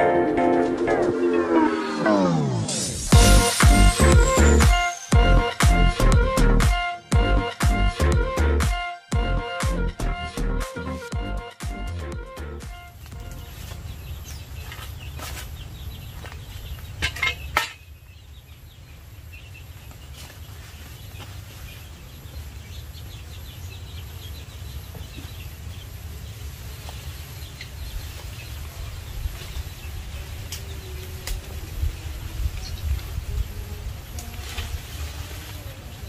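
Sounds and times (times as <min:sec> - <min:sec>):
birds chirping: 0:10.3 - 0:36.0.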